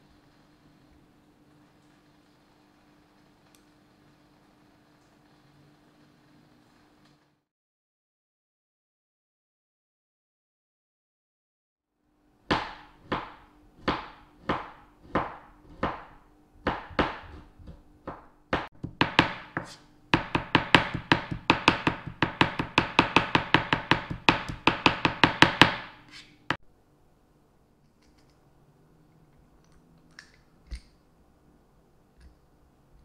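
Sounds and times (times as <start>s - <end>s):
knife chopping on plastic board: 12.5s - 26.1s.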